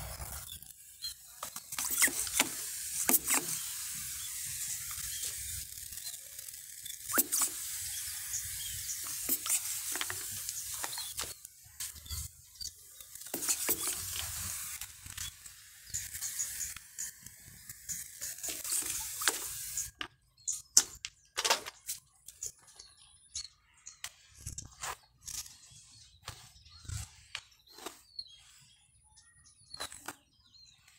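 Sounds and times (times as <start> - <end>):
hand-pump sprayer hissing: 0.0 - 20.0.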